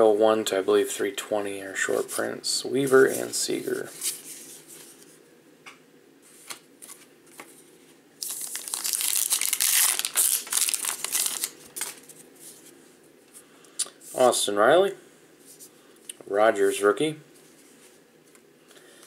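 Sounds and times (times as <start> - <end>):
wrapper tearing and crumpling: 8.2 - 12.1.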